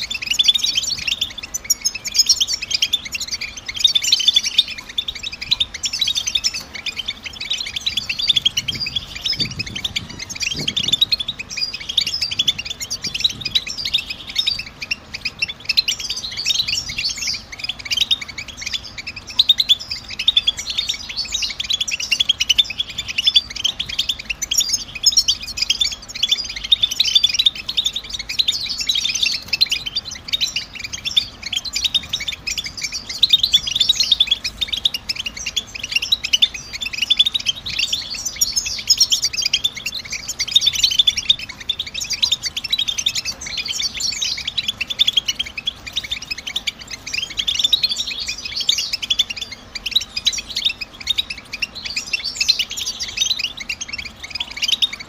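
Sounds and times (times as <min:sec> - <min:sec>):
goldfinches twittering: 0:00.0 - 0:55.0.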